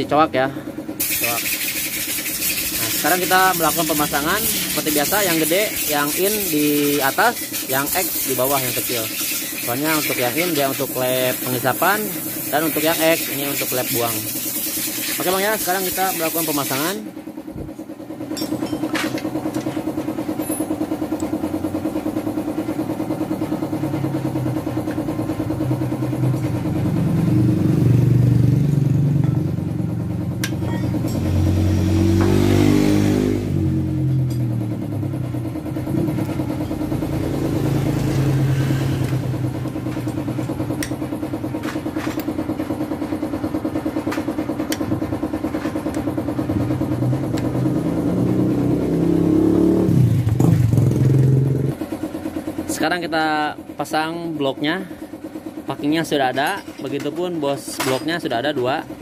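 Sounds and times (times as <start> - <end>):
motorcycle engine idling and revving: 0.0 - 59.0.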